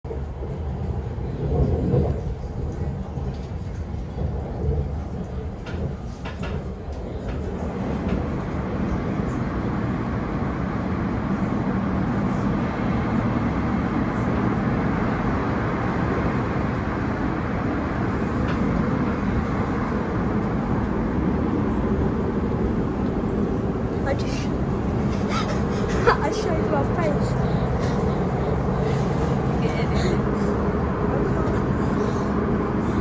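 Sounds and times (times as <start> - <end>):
train wheels rumbling on rail: 0.1 - 33.0.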